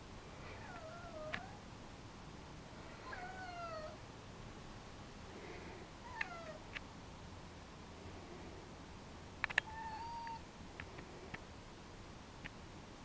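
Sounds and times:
cat meowing: 3.0s - 4.0s, 9.6s - 10.4s
sharp clicks: 9.4s - 11.4s.

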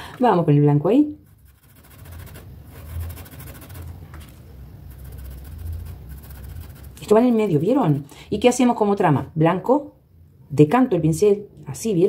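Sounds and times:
paintbrush dabbing on fabric: 1.2s - 8.0s.

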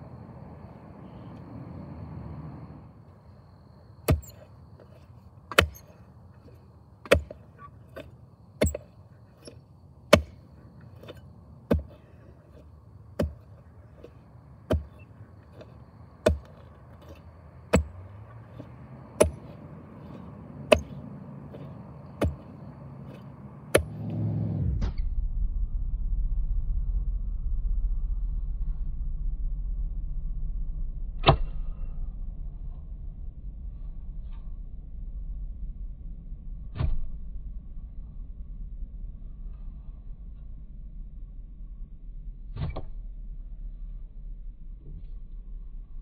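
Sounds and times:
low rumble: 0.0s - 3.9s, 12.7s - 46.0s
digger blades chopping into clay: 4.0s - 24.2s.

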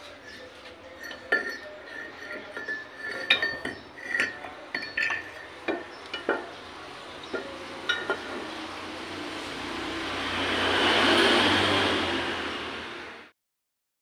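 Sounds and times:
metal clinks and knocks: 0.9s - 8.6s.

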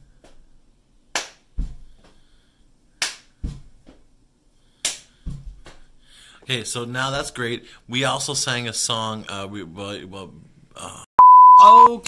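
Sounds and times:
hand clap: 1.1s - 1.5s, 3.0s - 3.3s, 4.8s - 5.1s.

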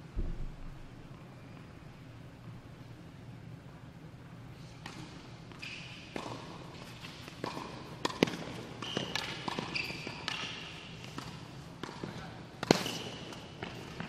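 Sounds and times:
ball bouncing: 0.2s - 1.0s
shoes squeaking on court: 8.8s - 14.0s.

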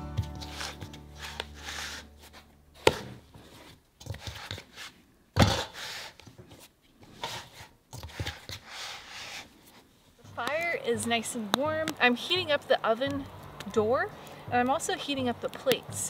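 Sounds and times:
dough squishing in metal bowl: 0.0s - 4.8s.

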